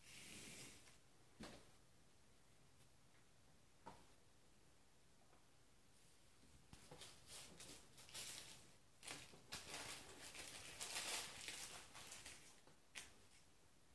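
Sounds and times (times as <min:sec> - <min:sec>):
plastic bag crinkling: 0:07.8 - 0:13.1.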